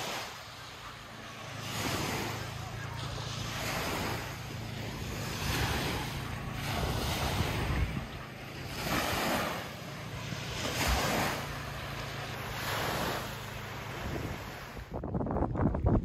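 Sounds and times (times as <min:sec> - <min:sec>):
water washing in waves: 0:00.0 - 0:16.0
steady low hum: 0:00.3 - 0:14.7
wind on microphone: 0:03.4 - 0:11.9, 0:12.5 - 0:16.0.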